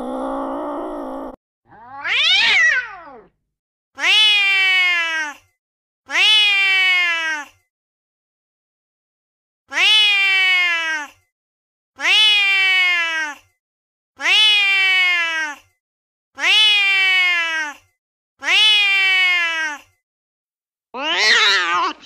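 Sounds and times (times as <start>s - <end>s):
angry cat meowing: 0.0s - 3.3s, 4.0s - 5.4s, 6.1s - 7.5s, 9.7s - 11.2s, 12.0s - 13.4s, 14.2s - 15.6s, 16.4s - 17.8s, 18.4s - 19.9s, 21.0s - 22.0s.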